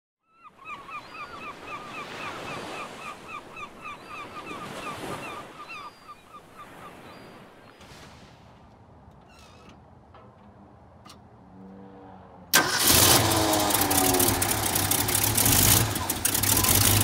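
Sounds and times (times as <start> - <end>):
surf washing onto beach: 13.2 - 17.0.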